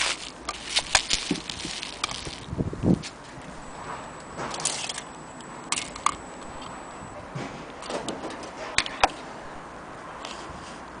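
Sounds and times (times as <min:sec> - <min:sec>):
bubble wrap rustling: 0:00.0 - 0:02.6.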